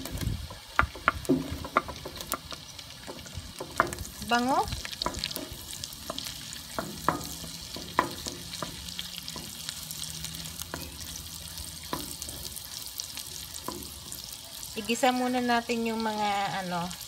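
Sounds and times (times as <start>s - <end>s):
food sizzling in oil: 0.0s - 17.0s
wooden spoon knocking on pan: 0.1s - 9.6s, 11.8s - 12.5s, 13.6s - 14.2s.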